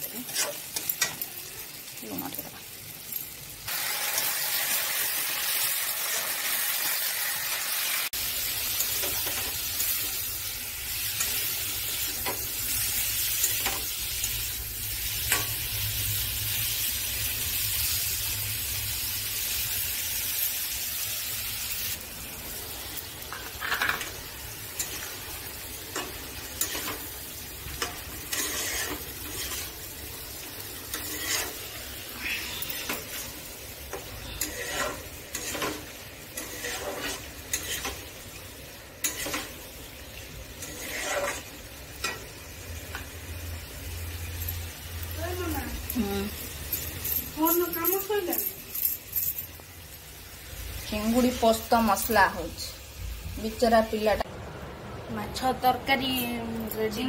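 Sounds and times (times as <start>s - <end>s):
prawns sizzling in hot oil: 0.0s - 54.3s
spatula scraping a pan: 0.1s - 1.2s, 27.7s - 30.0s, 30.7s - 38.3s, 39.0s - 39.6s, 40.4s - 42.3s.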